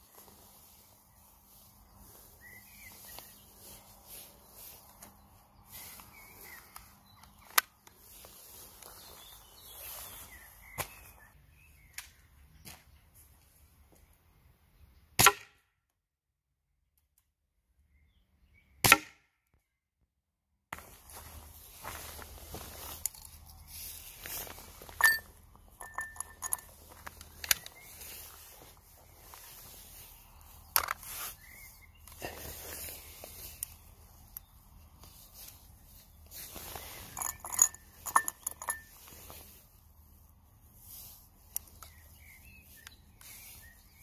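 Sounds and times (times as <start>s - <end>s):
birds chirping: 0.0s - 15.2s, 20.8s - 44.0s
clicks and knocks of gun handling: 6.7s - 8.0s, 25.8s - 27.9s, 30.7s - 31.0s
jacket rustling: 20.8s - 41.8s.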